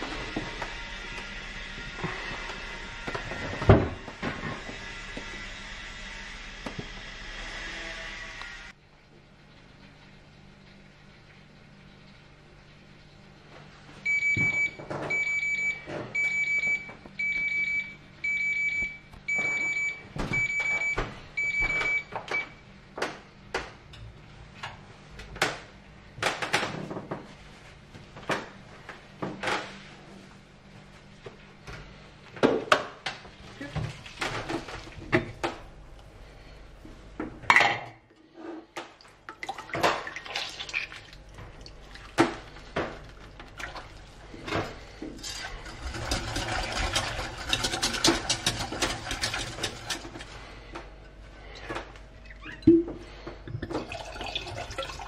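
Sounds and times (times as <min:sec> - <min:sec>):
kitchen alarm beeping: 0:14.0 - 0:22.7
baking tin and foil clattering: 0:45.2 - 0:50.3.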